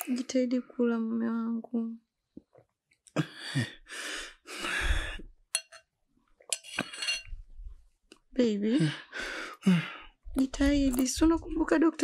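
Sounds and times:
man breathing heavily: 3.2s - 5.3s, 9.0s - 10.2s
metal spoon clinking bowl: 5.5s - 5.9s, 6.5s - 7.3s.

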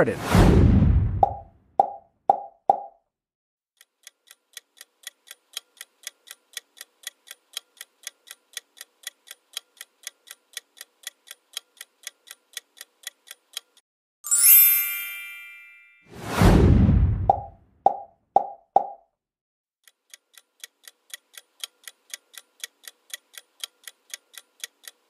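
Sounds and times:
clock ticking: 3.8s - 13.8s, 19.8s - 25.0s
bright chime: 14.3s - 16.1s.

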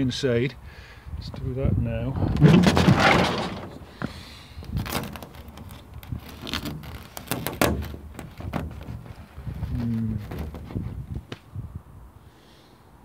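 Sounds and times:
hand pushing on plastic panel: 2.2s - 11.0s.

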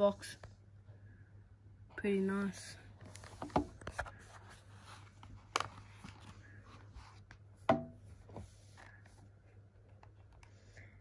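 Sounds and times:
hollow knocks: 7.7s - 8.0s.

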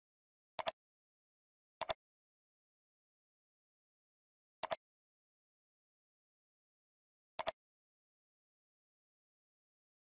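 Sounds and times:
computer mouse clicks: 0.6s - 0.8s, 1.8s - 2.0s, 4.6s - 4.8s, 7.4s - 7.6s.

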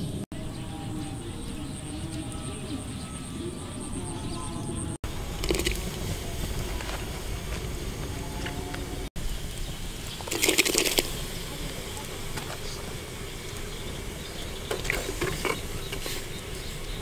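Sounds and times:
food splashing into water: 5.4s - 5.8s, 10.2s - 11.2s.

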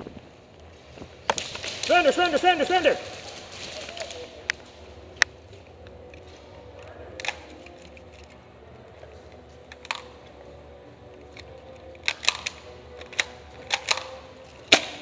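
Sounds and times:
airsoft gun cracks: 1.3s - 2.1s, 7.2s - 8.0s, 12.0s - 15.0s
steady low hum: 2.5s - 15.0s.

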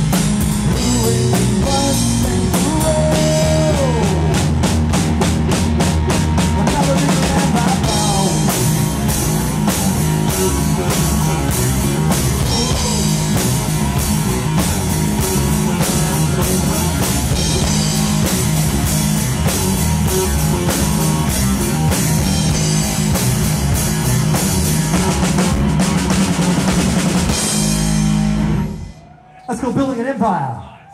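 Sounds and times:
rapid drum strikes: 0.0s - 28.4s
electric guitar: 0.0s - 29.0s
drum kit: 0.0s - 29.1s.

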